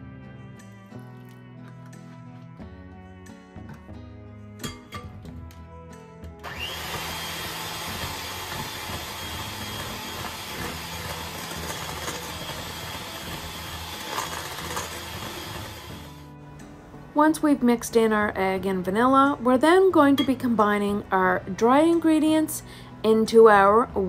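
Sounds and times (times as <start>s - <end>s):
electric hand mixer beating: 6.4s - 16.3s.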